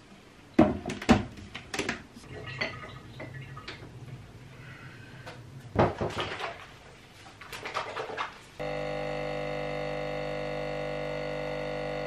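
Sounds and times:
low hum: 8.6s - 12.0s.

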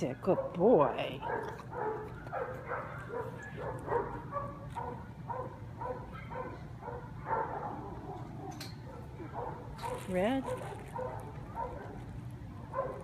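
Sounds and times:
dog barking: 1.2s - 12.0s, 12.7s - 13.0s.

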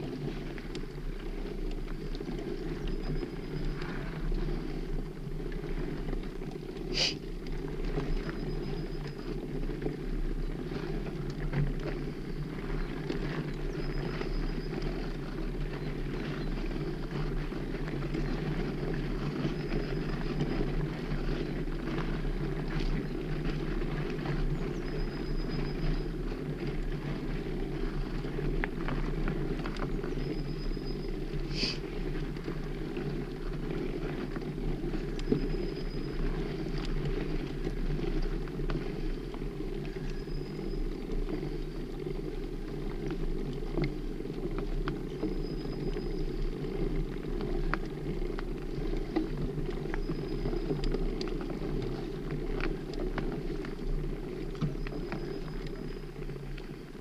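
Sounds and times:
bike tyres rumbling on gravel: 0.0s - 57.0s.

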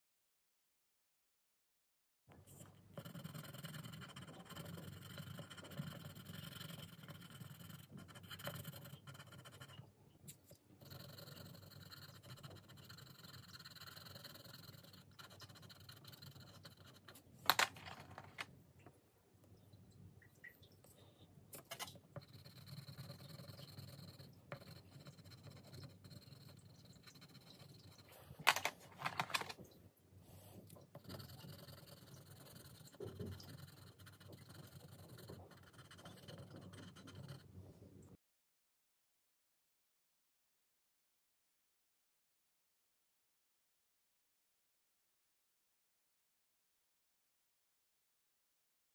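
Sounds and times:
pencil scratching on paper: 2.4s - 9.9s, 10.8s - 18.5s, 21.6s - 29.6s, 30.3s - 37.5s.

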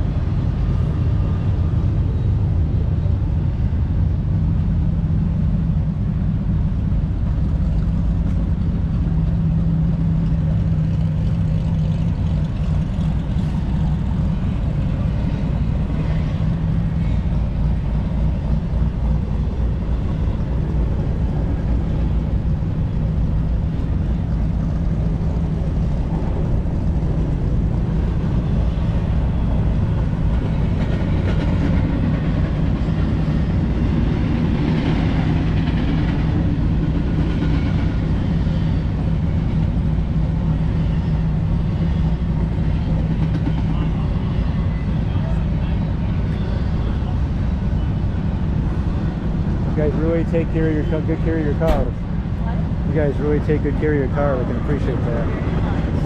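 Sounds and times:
car engine idling: 49.8s - 55.3s.

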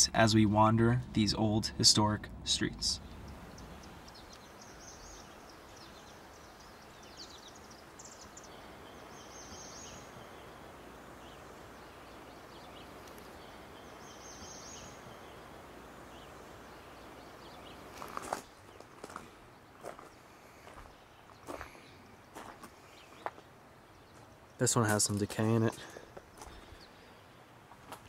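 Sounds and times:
steady low hiss: 0.0s - 28.0s
faint bird chirps: 2.6s - 24.7s.

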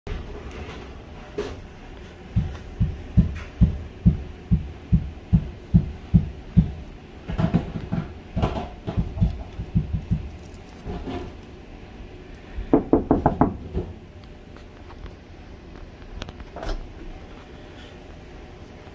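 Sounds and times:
knocking on a door: 2.4s - 10.3s, 12.7s - 14.0s.

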